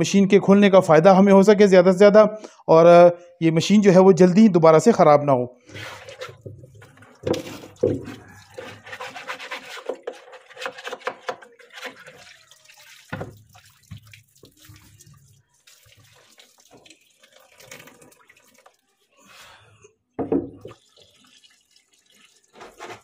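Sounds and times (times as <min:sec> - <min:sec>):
brush scrubbing plastic tub: 0:05.6 - 0:16.8, 0:22.4 - 0:23.0
hose water running into tub: 0:05.6 - 0:19.1, 0:20.6 - 0:23.0
water pouring onto floor: 0:11.5 - 0:19.0, 0:20.6 - 0:23.0.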